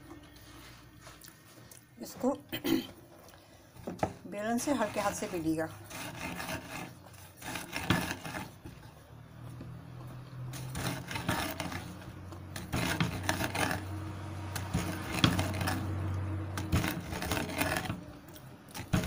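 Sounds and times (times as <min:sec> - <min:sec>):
rolling pin beating dough: 0:03.8 - 0:09.0, 0:09.6 - 0:19.0.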